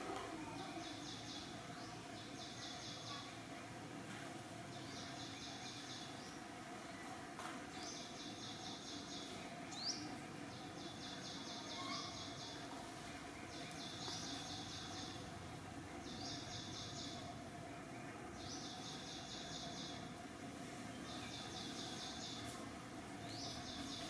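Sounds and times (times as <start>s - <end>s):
outdoor background noise: 0.0s - 24.0s.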